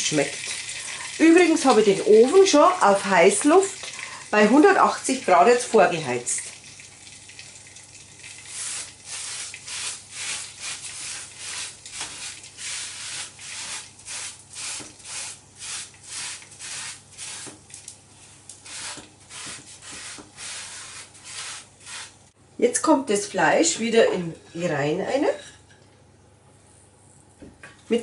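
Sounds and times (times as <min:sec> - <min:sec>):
paper towel rubbing pan: 0:08.6 - 0:17.6, 0:18.2 - 0:22.2.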